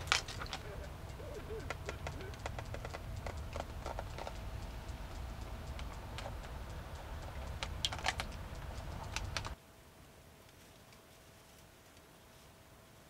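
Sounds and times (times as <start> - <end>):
low steady rumble: 0.0 - 9.6.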